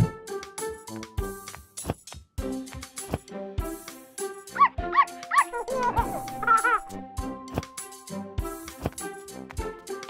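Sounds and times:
cartoon music with a beat: 0.0 - 10.0
puppy-like yips: 4.6 - 7.0.

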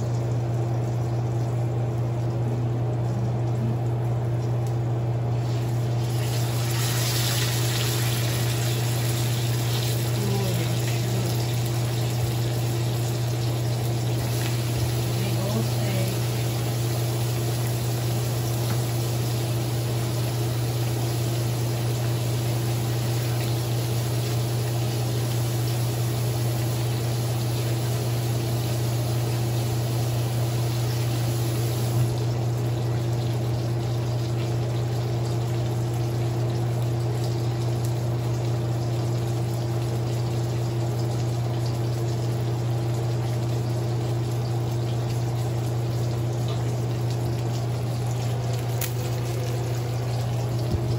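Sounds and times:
loud low hum: 0.0 - 21.5, 48.0 - 50.9
steak sizzling in hot oil: 5.4 - 32.1, 48.6 - 49.4.

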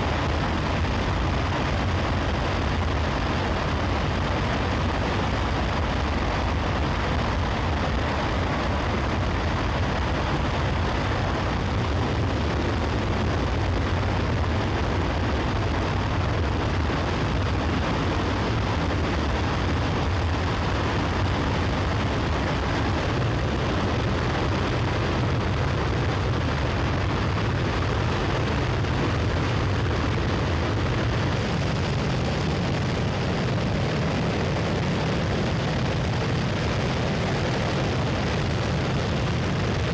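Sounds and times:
rocket engine rumble: 0.0 - 39.9.

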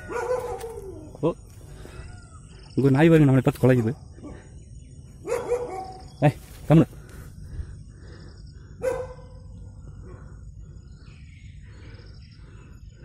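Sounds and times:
dog barking: 0.0 - 1.0, 5.2 - 6.1, 8.8 - 9.4.

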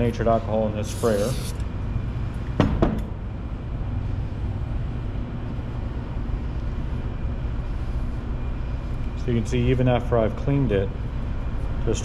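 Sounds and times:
workshop noise drone: 0.0 - 12.0.

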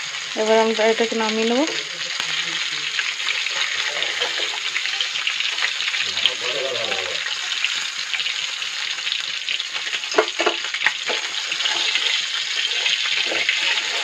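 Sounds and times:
fish sizzling in hot oil: 0.0 - 14.0
metal spatula scraping pan: 3.2 - 4.7, 10.1 - 14.0.

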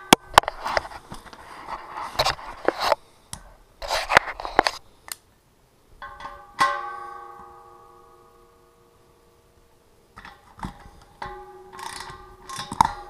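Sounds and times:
metal clank ringing: 6.0 - 9.0, 10.2 - 13.0
ratchet clicking on metal: 11.7 - 13.0.

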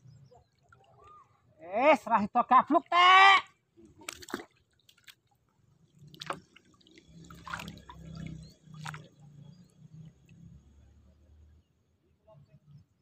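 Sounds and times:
water dripping and splashing: 3.8 - 10.8.

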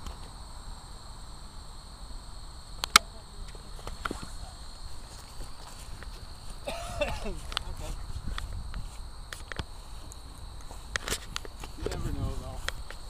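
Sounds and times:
high insect buzz: 0.0 - 13.0
low wind rumble: 0.0 - 13.0
sharp clicks: 2.8 - 3.1.

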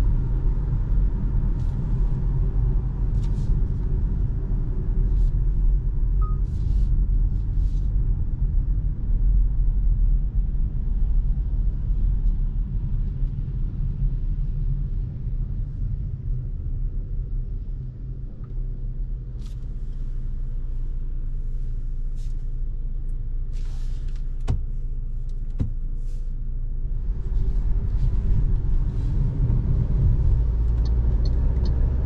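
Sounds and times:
car tyres and engine rumble: 0.0 - 32.0.

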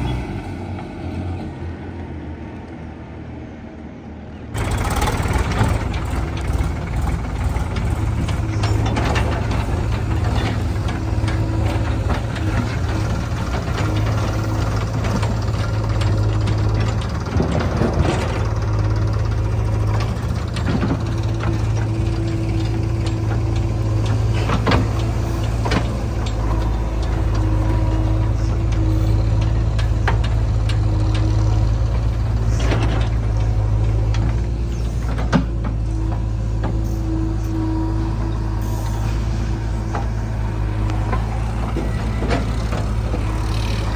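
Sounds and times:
diesel engines running: 0.0 - 43.9
backhoe bucket clanking: 4.6 - 38.4.

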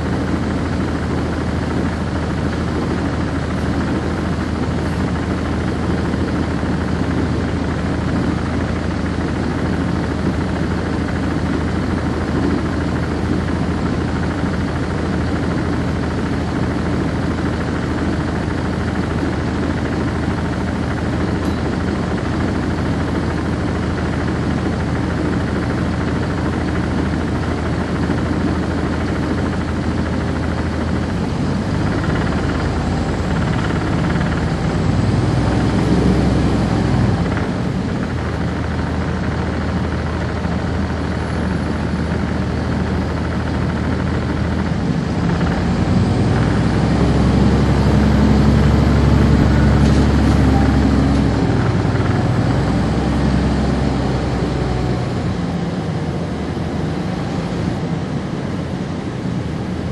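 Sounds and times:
bus diesel engine droning: 0.0 - 59.9.

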